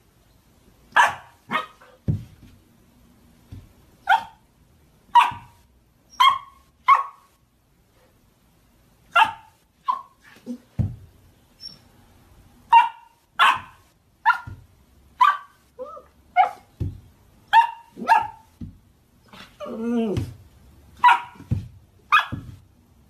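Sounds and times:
dog barking: 0.9 - 2.0, 4.0 - 4.4, 5.1 - 7.3, 9.1 - 10.6, 12.7 - 14.6, 15.2 - 16.7, 17.5 - 18.5, 21.0 - 21.5, 22.1 - 22.6.

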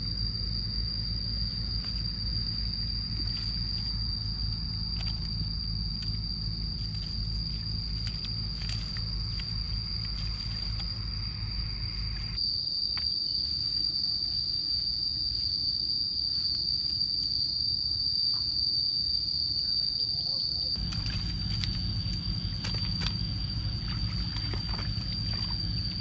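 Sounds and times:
low rumble: 0.0 - 12.4, 20.8 - 26.0
insects droning: 0.0 - 26.0.

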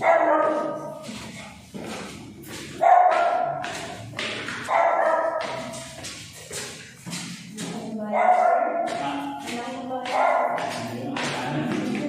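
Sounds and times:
dog barking: 0.0 - 1.0, 2.8 - 4.0, 4.6 - 6.0, 8.1 - 9.0, 10.0 - 11.3.

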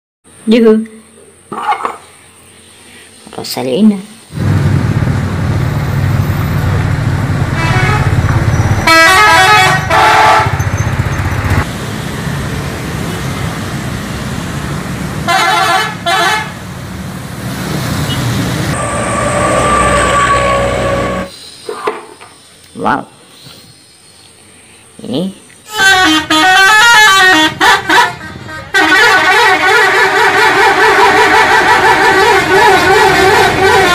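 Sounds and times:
road traffic: 0.3 - 33.9
low rumble of bus engines: 4.2 - 21.6, 24.3 - 33.9
bus horns honking: 6.0 - 12.3, 15.2 - 16.8, 17.6 - 21.3, 25.7 - 33.9.

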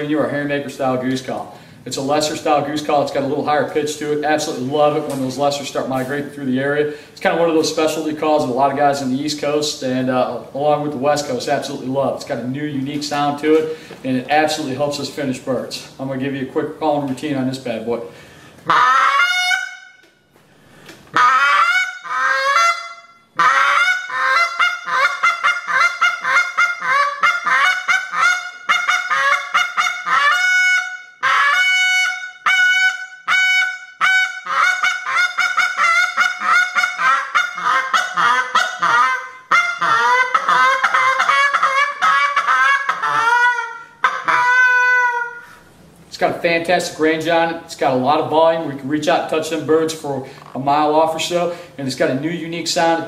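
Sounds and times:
goose call honks: 18.7 - 19.8, 21.1 - 45.5.

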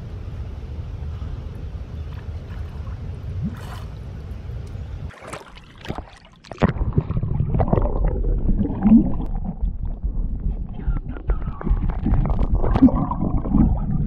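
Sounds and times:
water splashing around swimmer: 5.1 - 13.7
low rushing rumble: 6.7 - 14.0.

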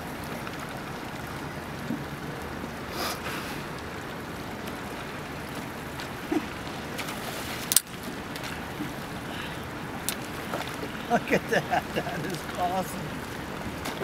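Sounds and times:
river water lapping and trickling: 0.0 - 14.0
fish slapping water surface: 5.6 - 14.0.

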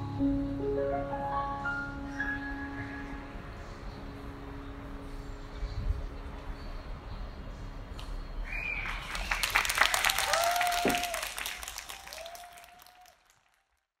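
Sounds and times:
audience applauding: 8.5 - 13.9.

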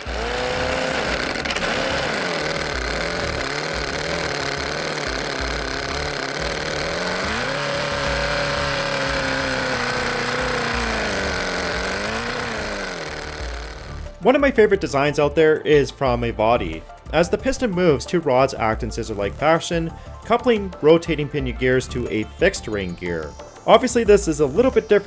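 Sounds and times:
small engine idling and revving: 0.0 - 14.2.

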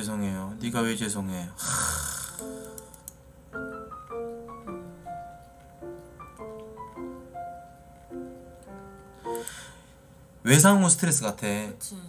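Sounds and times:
gentle solo piano music: 3.6 - 9.5.

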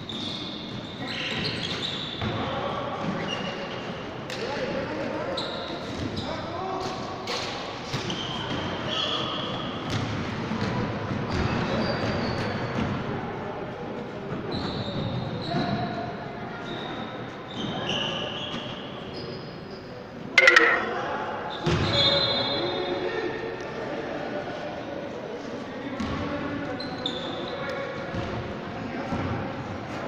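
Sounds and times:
players' voices echoing: 20.4 - 21.3.

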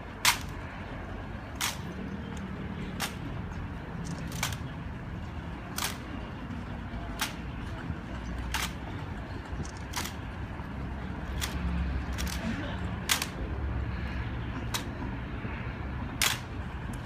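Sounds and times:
low background murmur: 0.0 - 17.0
hands smacking rifles: 0.2 - 0.6, 1.6 - 1.9, 5.8 - 6.0, 13.0 - 13.4, 16.2 - 16.4.

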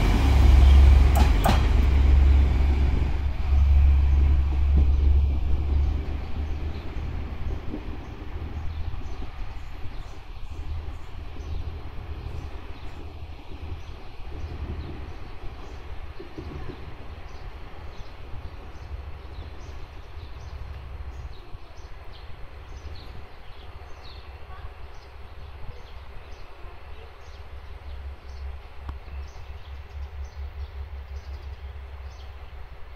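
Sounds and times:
steady low rumble: 0.0 - 26.3.

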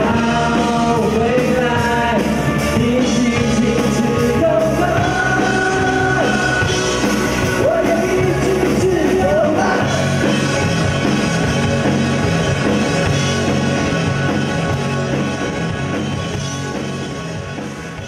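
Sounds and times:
person singing: 0.0 - 10.3
live rock band playing: 0.0 - 18.0.

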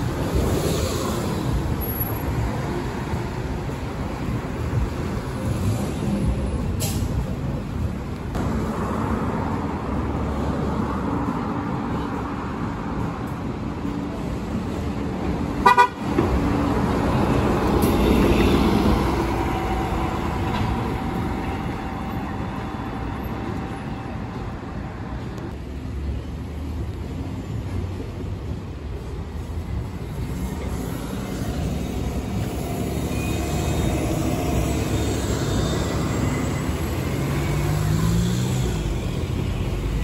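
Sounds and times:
bus engine: 0.0 - 40.0
street traffic: 0.0 - 40.0
vehicle horn toot: 15.6 - 16.0.

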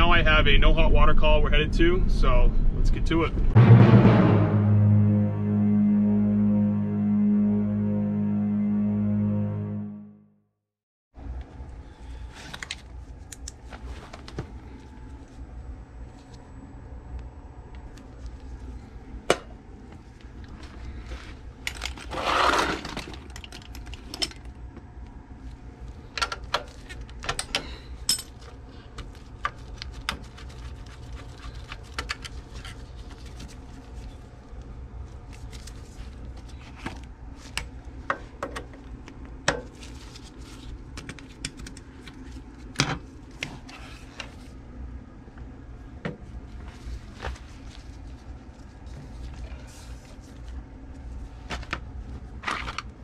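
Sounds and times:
steady low hum: 0.0 - 10.2, 11.2 - 53.0
rustling scrape: 22.0 - 23.0, 43.5 - 44.5.

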